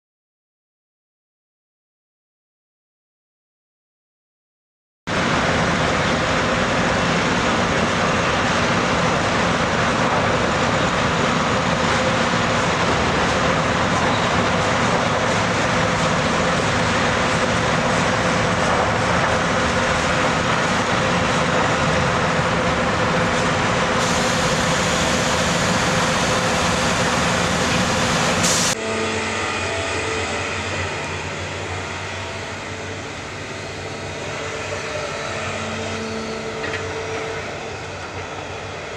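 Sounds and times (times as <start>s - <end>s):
truck diesel engine and tyres: 5.1s - 28.8s.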